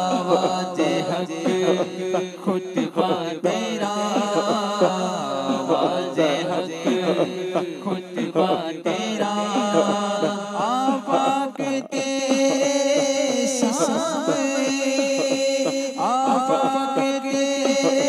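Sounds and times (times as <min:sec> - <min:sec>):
man singing devotional song: 0:00.0 - 0:18.0.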